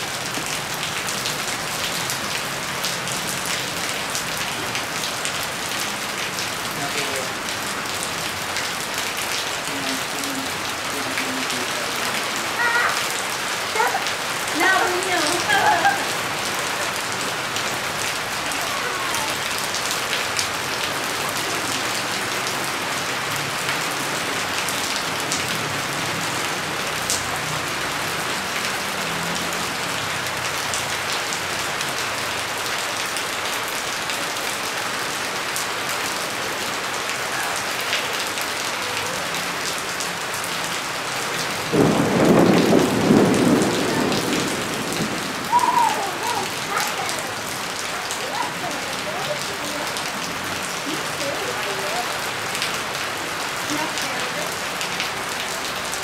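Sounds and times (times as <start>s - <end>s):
rain on concrete and puddles: 0.0s - 56.0s
thunder rumble: 41.7s - 46.7s.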